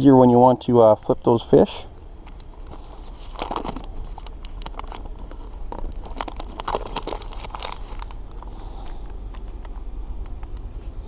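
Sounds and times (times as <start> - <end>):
paper wrapper crackling: 2.6 - 9.7.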